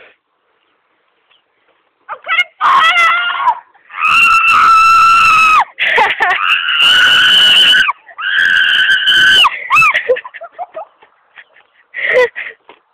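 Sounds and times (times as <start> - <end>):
young person screaming: 2.1 - 10.1
short broken cries: 2.1 - 10.2.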